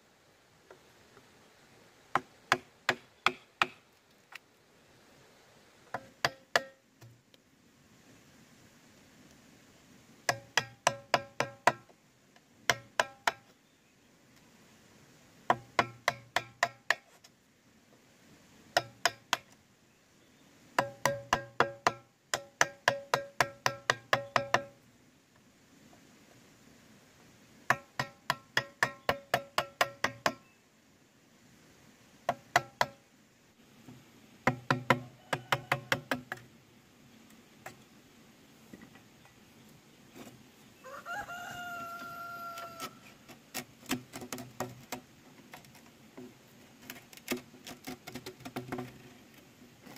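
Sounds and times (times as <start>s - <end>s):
tool knocking on hollow bamboo: 2.1s - 3.8s, 5.9s - 7.2s, 10.3s - 11.9s, 12.7s - 13.5s, 15.5s - 17.1s, 18.8s - 19.5s, 20.8s - 24.8s, 27.7s - 30.4s, 32.3s - 33.0s, 33.9s - 36.5s, 43.8s - 45.0s, 47.3s - 49.0s.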